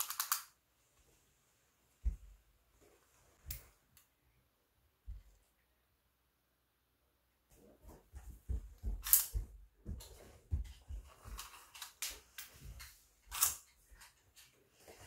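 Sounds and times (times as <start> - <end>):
tape measure clicks and knocks: 0.0 - 0.5, 9.0 - 9.4.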